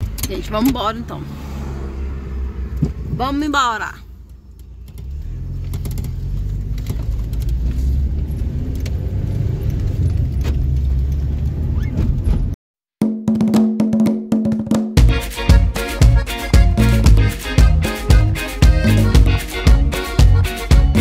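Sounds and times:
car engine and tyre rumble: 0.0s - 12.6s
music with percussive beats: 13.0s - 21.0s.

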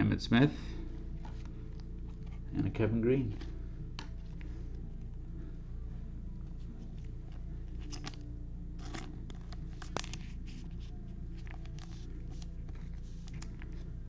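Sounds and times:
steady low hum: 0.0s - 14.0s
plastic sleeve crinkling: 7.7s - 13.9s.

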